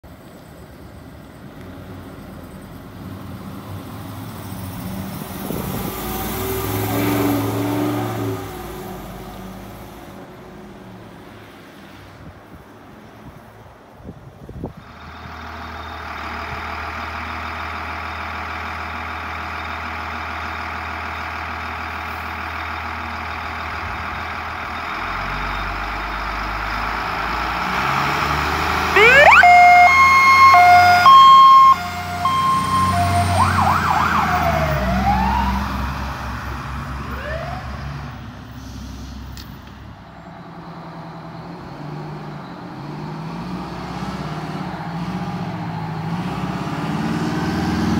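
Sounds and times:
diesel engine running: 14.7 - 37.5
siren wailing: 28.9 - 36.0, 37.1 - 37.8
air horn blasts: 29.0 - 34.3.

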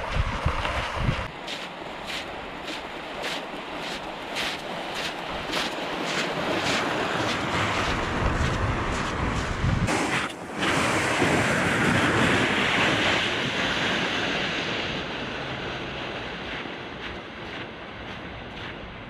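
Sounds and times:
wind on microphone: 0.0 - 1.4, 2.0 - 19.0
sled scraping across ice: 1.2 - 17.1.

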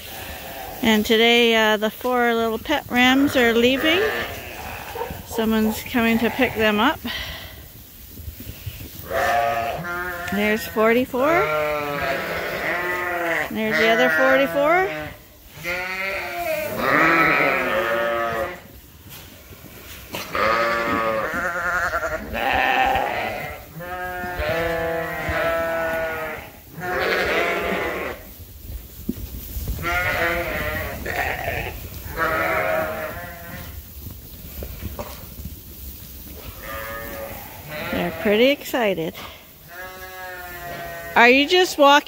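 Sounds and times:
young sheep bleating: 3.0 - 7.0, 9.0 - 18.6, 20.2 - 28.2, 29.8 - 33.7, 36.6 - 39.0, 39.7 - 42.0.

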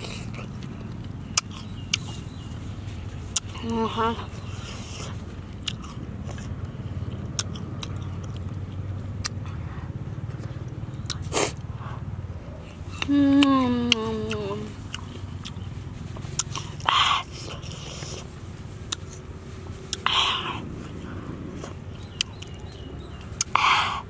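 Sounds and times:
crunching gooseberries: 0.0 - 11.8, 12.6 - 24.0
person humming: 13.0 - 14.8.

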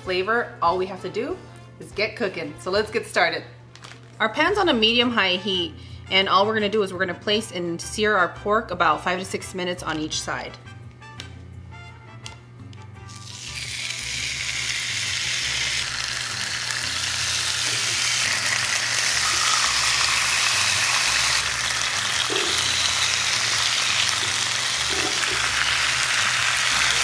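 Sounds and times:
meat sizzling in a pan: 13.1 - 27.0.

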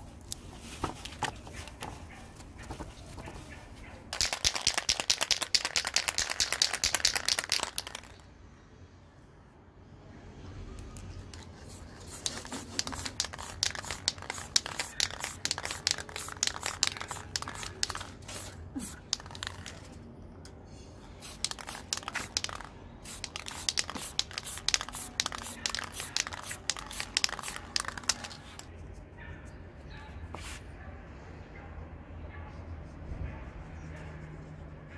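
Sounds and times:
spray-paint can hissing: 4.2 - 8.1, 11.4 - 19.8, 21.2 - 28.7
paper crinkling: 23.3 - 28.7.

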